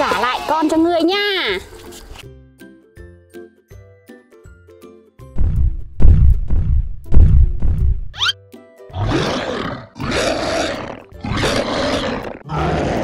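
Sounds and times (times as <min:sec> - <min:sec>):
music with heavy drum hits: 0:05.4 - 0:08.1
monster roars: 0:09.0 - 0:13.0.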